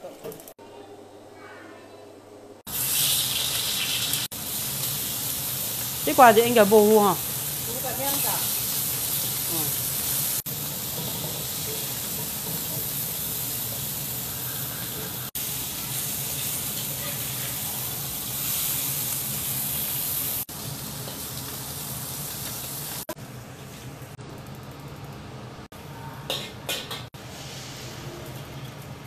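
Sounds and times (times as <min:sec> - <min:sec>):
fish sizzling in hot oil: 0:02.7 - 0:23.2.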